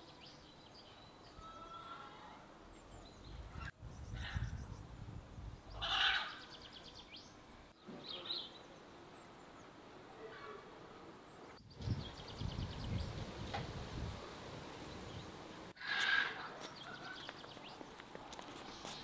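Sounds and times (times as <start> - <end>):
birds chirping trills: 0.0 - 13.6
birds calling: 5.6 - 19.0.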